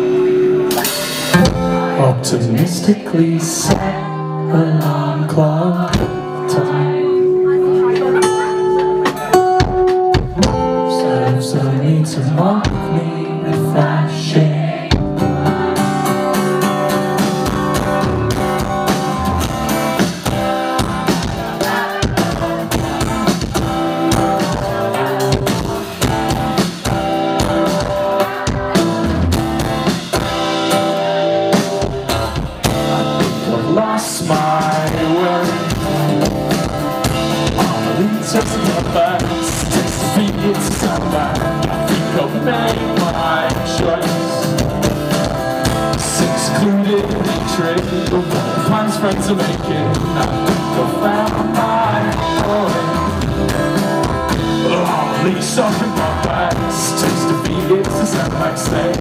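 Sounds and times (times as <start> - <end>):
drums: 0.0 - 59.0
electric guitar: 0.0 - 59.0
rock band playing: 0.0 - 59.0
person singing: 1.3 - 19.8, 20.6 - 29.4, 31.6 - 44.7, 45.7 - 53.4, 54.3 - 59.0.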